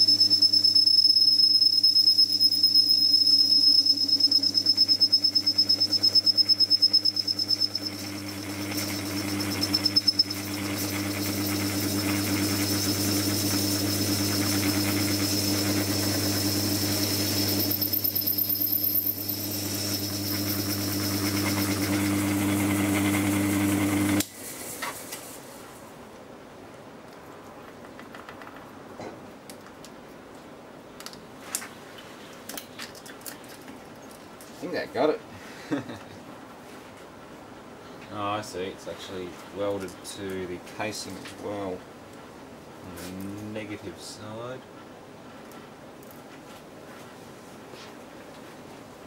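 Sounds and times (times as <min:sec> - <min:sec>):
lathe motor hum: 0:02.6 - 0:24.2
lathe cutting metal: 0:05.5 - 0:24.2.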